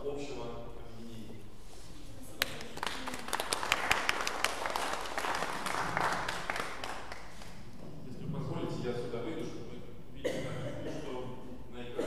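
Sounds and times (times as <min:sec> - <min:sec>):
audience applauding: 0:02.4 - 0:07.7.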